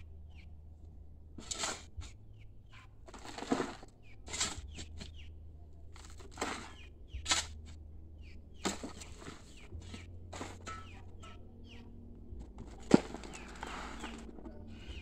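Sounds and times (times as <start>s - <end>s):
metal spade digging soil: 1.3s - 2.2s, 3.1s - 5.2s, 5.9s - 7.8s, 8.6s - 11.8s, 12.4s - 15.0s.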